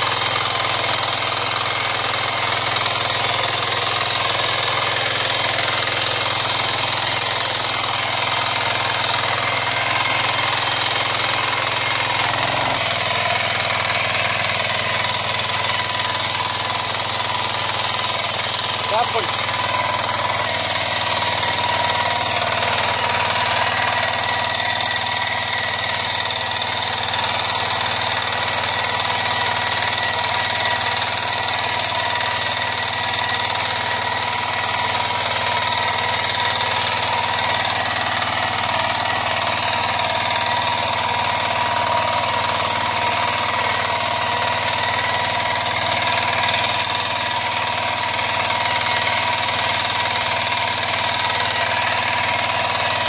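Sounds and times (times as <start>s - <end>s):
tiller engine running: 0.0s - 53.0s.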